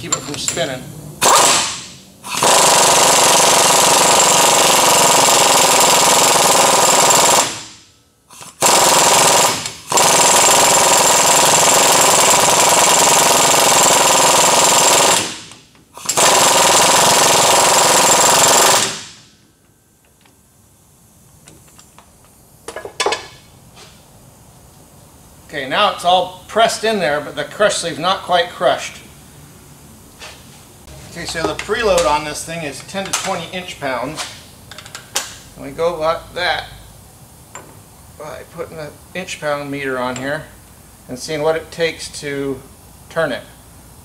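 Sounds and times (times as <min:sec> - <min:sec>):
pneumatic impact wrench hammering: 0:01.2 - 0:19.5.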